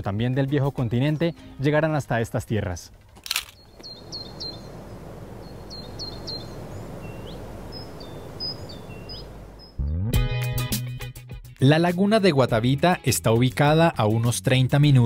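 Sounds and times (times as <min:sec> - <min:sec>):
low outdoor ambience: 0:02.9 - 0:09.8
small birds chirping: 0:03.6 - 0:09.8
rising whistled notes: 0:03.8 - 0:09.8.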